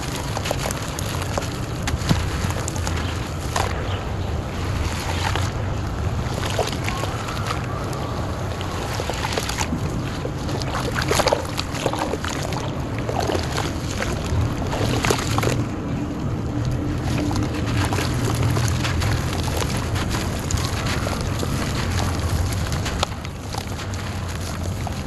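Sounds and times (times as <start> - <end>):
water dripping: 0.0 - 25.0
hands splashing in water: 6.2 - 15.7.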